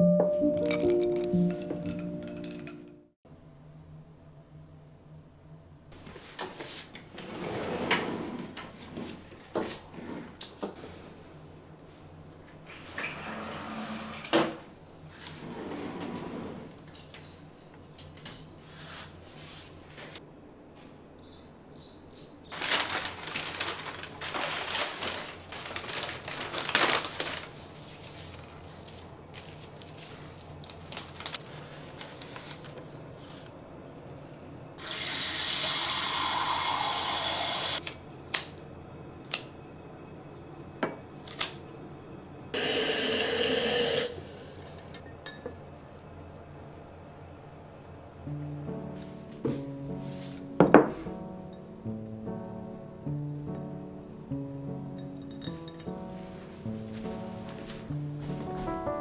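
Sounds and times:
small birds chirping: 16.7s - 19.4s, 21.0s - 22.6s
footsteps in slippers: 22.5s - 33.4s, 56.0s - 59.0s
rustling: 22.5s - 33.6s, 55.9s - 58.9s.

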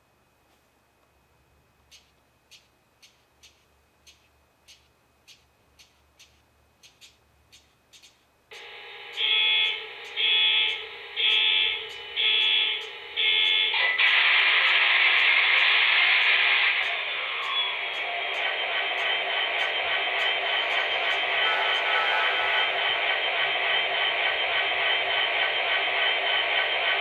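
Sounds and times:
model locomotive engine sound: 8.0s - 27.0s
train horn blasts: 9.1s - 13.8s, 21.4s - 22.7s.

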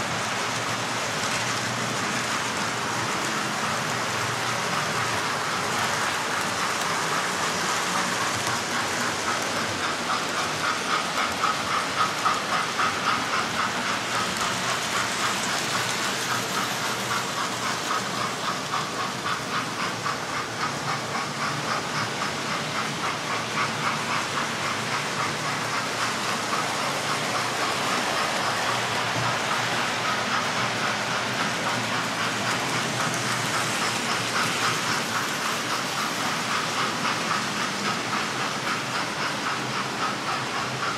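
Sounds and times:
model train wheels clicking on track: 0.0s - 40.9s.

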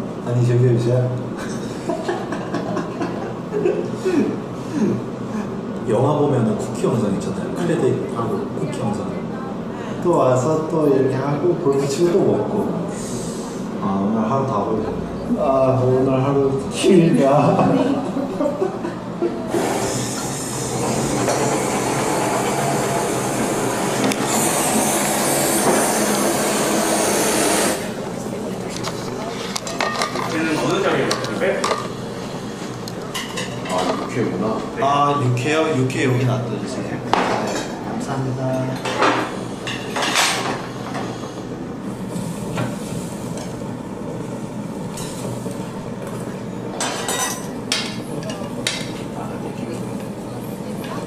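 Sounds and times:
restaurant room rumble: 0.0s - 51.0s
blowtorch flame hissing: 19.5s - 28.6s, 39.3s - 46.6s.

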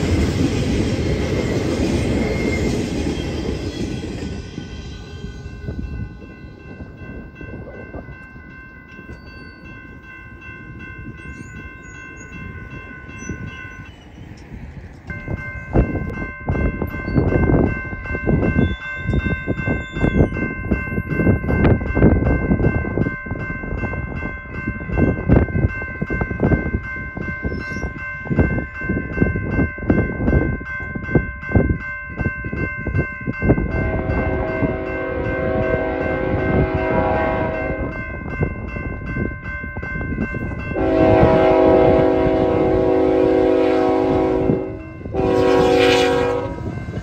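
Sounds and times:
crossing warning bell ringing: 0.0s - 47.0s
wind buffeting microphone: 0.0s - 47.0s
locomotive horn chord: 33.8s - 38.0s, 40.8s - 47.0s.

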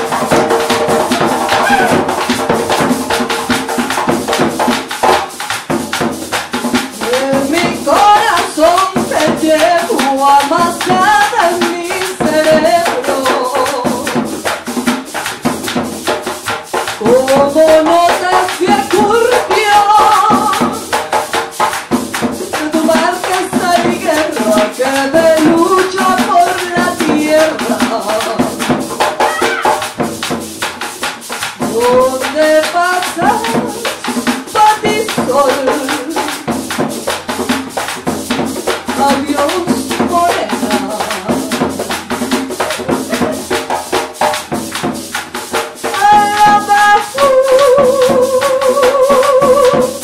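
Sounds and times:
hand drums: 0.0s - 50.0s
shakers: 0.0s - 50.0s
woman singing: 6.8s - 14.5s, 17.0s - 21.2s, 22.5s - 29.9s, 31.5s - 36.9s, 38.9s - 43.6s, 45.8s - 50.0s.

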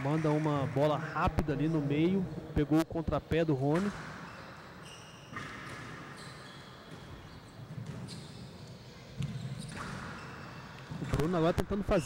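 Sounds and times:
court shoes squeaking: 3.4s - 12.0s.

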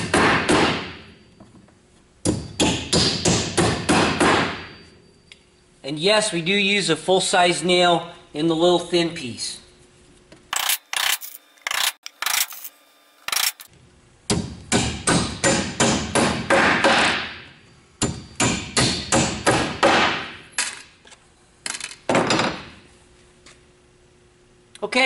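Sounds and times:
hammer striking nails into wood: 0.0s - 0.9s, 2.2s - 4.6s, 14.3s - 17.3s, 18.0s - 20.3s.

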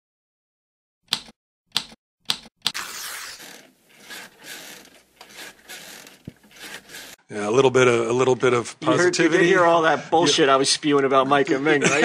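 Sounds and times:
rough rustling noise: 2.8s - 7.2s.

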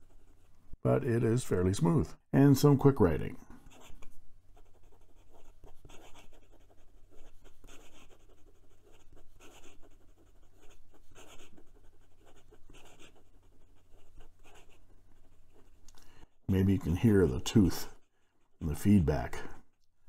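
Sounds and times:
pen nib scratching paper: 3.7s - 15.9s.

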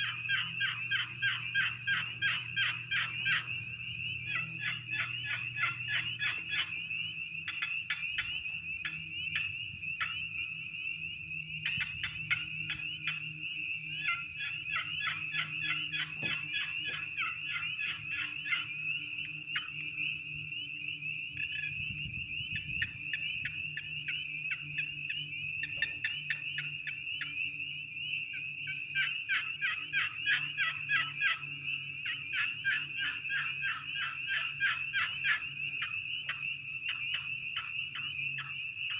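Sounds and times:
box turkey call notes: 0.0s - 10.4s, 13.9s - 19.9s, 28.3s - 31.4s, 32.0s - 38.9s.

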